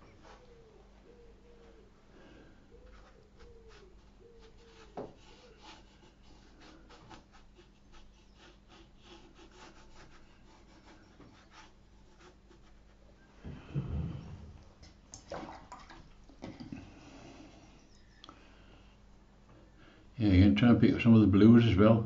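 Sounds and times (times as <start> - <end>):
brush scratching on paper: 2.8 - 13.1.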